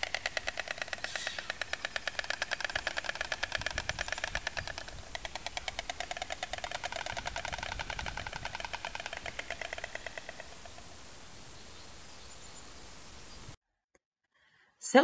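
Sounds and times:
stork clattering its bill: 0:00.0 - 0:10.9.

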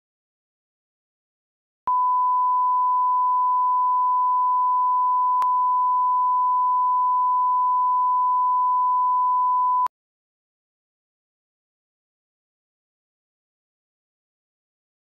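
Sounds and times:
steady line-up tone beep: 0:01.9 - 0:09.9.

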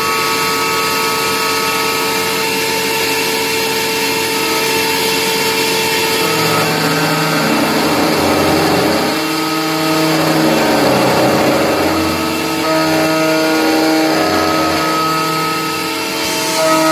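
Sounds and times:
low machine tones: 0:04.4 - 0:15.3
spindle whine: 0:04.4 - 0:15.9.

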